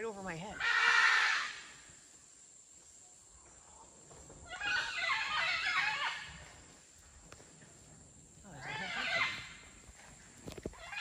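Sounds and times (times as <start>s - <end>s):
howler monkeys calling: 0.4s - 1.9s, 4.4s - 6.7s, 8.4s - 9.9s, 10.7s - 11.0s.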